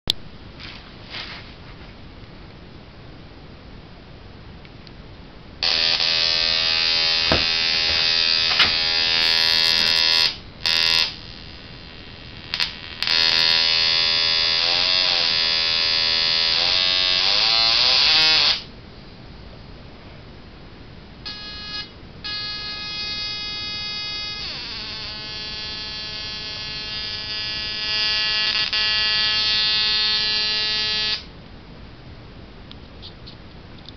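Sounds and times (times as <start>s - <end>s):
high-pitched electric buzz: 5.6s - 18.7s, 21.2s - 31.3s.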